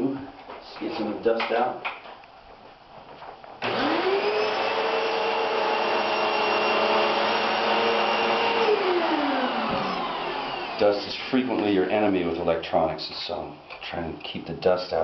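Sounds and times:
vacuum cleaner motor whine: 3.6 - 11.2.

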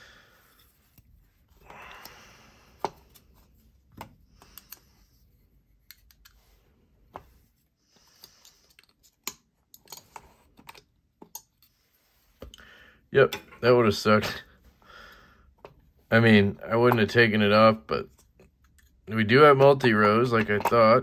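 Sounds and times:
clicks and taps of small tools: 3.9 - 4.9, 5.8 - 6.4, 8.2 - 11.7, 20.3 - 21.0.

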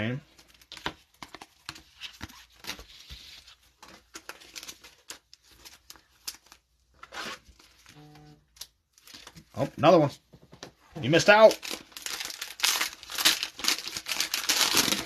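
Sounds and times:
trading cards crinkling and clicking: 0.3 - 2.9, 3.6 - 6.7, 11.3 - 15.0.

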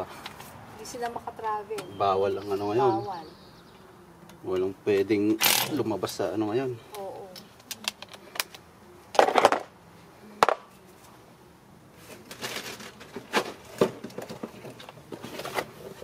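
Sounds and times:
knocks and rustles: 12.0 - 16.0.

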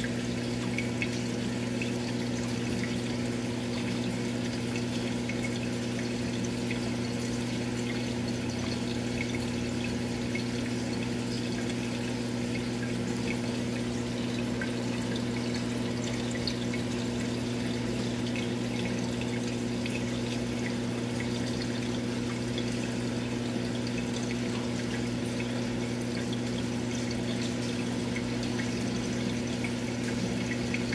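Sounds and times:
aquarium pump humming: 0.0 - 30.9
water bubbling and trickling: 0.0 - 30.9.

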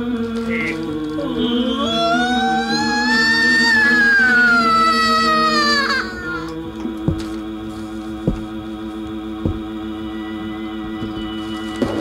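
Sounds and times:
low droning hum: 0.0 - 12.0
deep thumps: 8.2 - 8.7, 9.4 - 9.9.

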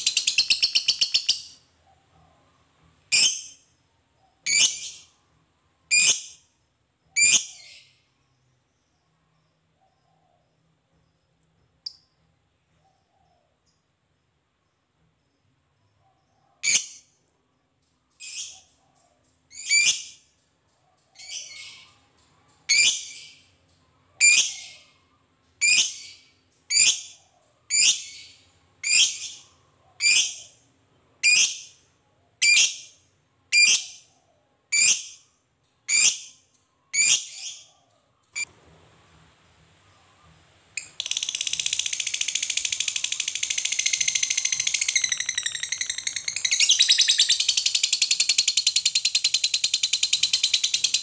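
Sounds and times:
lovebird chattering: 0.0 - 1.6, 40.8 - 51.0.

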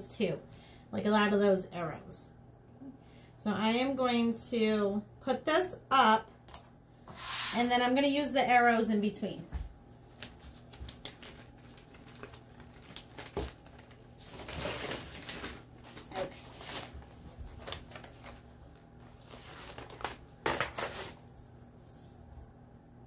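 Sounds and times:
plastic sheet rustling and crinkling: 10.1 - 22.3.

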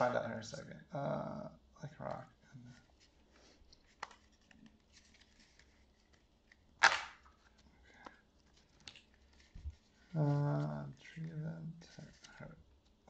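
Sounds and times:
cards clicking and rustling: 3.8 - 9.6.

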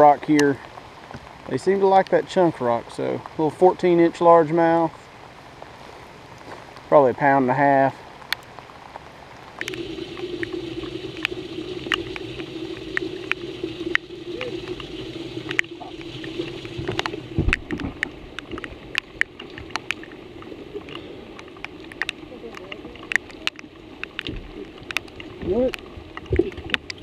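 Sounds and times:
raindrops ticking on camera: 0.0 - 27.0
low thump: 16.8 - 18.1.

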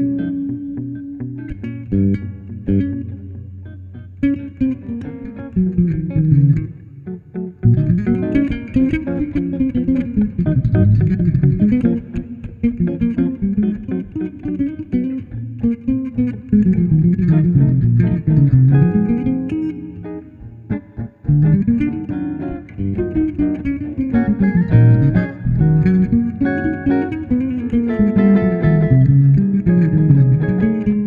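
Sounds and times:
electric guitar plucked notes: 0.0 - 31.0
electric bass line: 5.6 - 8.9, 9.7 - 14.2, 16.7 - 31.0.

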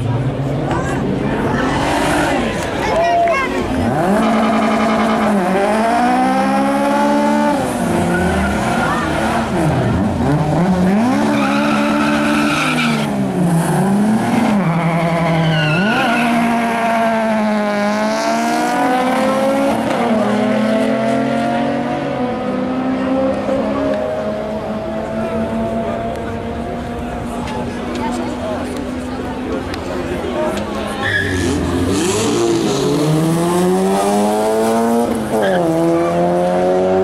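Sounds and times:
car engine revving: 1.4 - 37.0
tyres squealing: 30.9 - 31.8.

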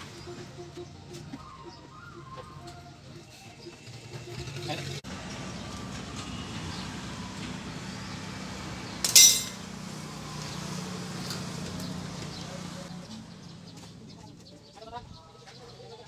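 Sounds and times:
sharp metallic clink: 9.0 - 9.6.

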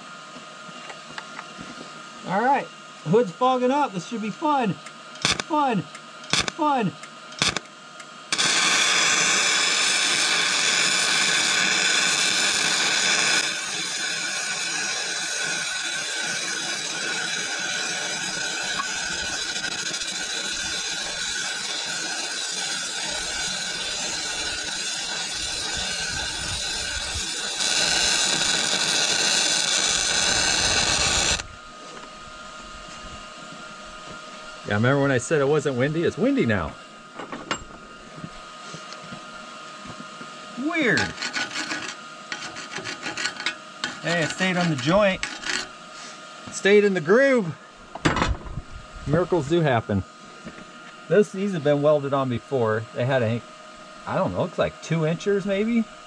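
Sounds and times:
welding arc sizzling: 2.2 - 33.1, 40.5 - 47.5, 54.0 - 56.0.

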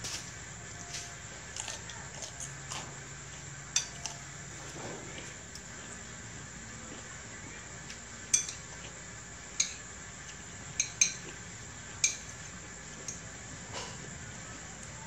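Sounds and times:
metal utensils clinking on plates: 3.7 - 4.2, 8.3 - 8.7.

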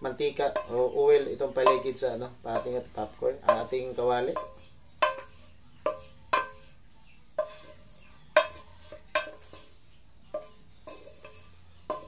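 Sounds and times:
wooden spatula knocking on pan: 0.4 - 6.7, 8.3 - 9.7, 10.3 - 12.0.

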